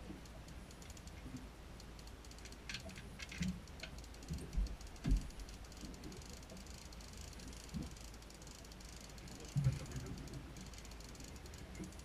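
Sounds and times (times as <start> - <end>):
fishing reel clicking: 0.1 - 12.0
low thumps: 4.3 - 5.5.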